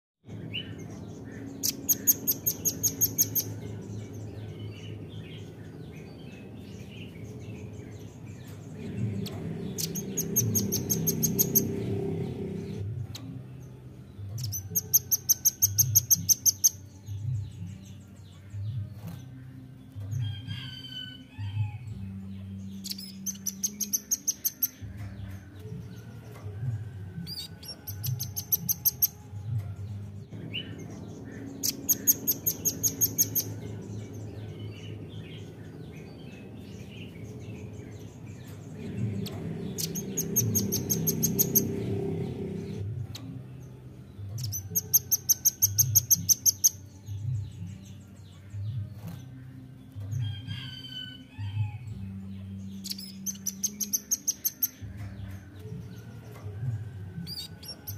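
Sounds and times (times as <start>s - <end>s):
low pulsing hum: 0.2s - 20.2s, 21.6s - 50.2s
bird trilling: 1.2s - 3.6s, 9.2s - 11.8s, 22.8s - 24.9s, 30.5s - 36.1s, 38.8s - 41.8s, 52.8s - 54.8s
soft bird chirps: 22.2s - 26.4s, 52.4s - 56.5s.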